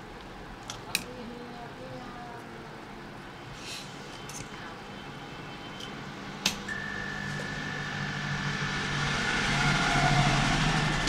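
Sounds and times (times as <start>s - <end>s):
low hum: 5.0s - 11.0s.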